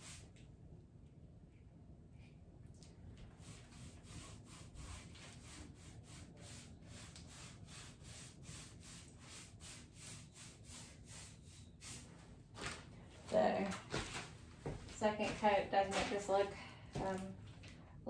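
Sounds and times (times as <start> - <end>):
paint applicator rubbing on wood: 3.4 - 12.2.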